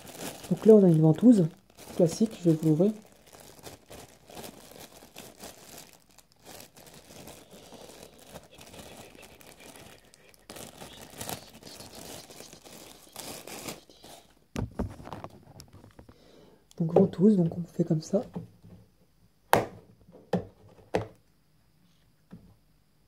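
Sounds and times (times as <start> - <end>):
plastic bag crinkling: 0.0 - 16.1.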